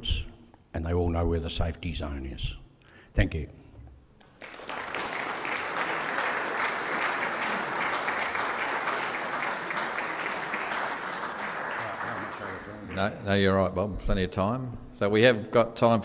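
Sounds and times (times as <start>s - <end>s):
audience applauding: 4.2s - 13.3s.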